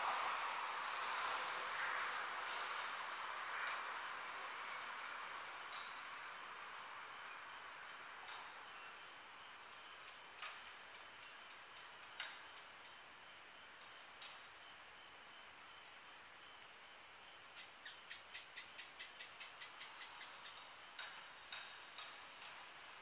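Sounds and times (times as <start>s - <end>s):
crickets chirping: 0.0s - 23.0s
faint hiss: 0.0s - 23.0s.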